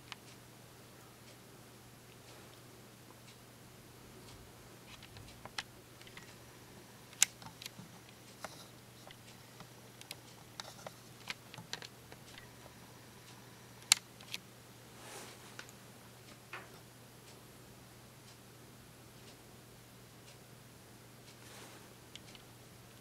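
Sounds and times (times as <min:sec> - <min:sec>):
faint low hum: 0:00.0 - 0:23.0
light clicks and ticks: 0:04.2 - 0:06.4, 0:07.1 - 0:14.4, 0:21.2 - 0:23.0.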